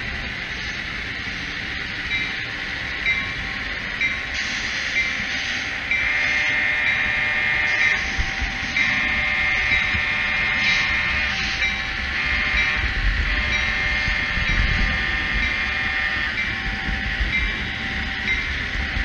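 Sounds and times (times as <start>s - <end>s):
diesel locomotive engine running: 0.0s - 19.0s
multi-note air horn blasts: 6.1s - 17.2s.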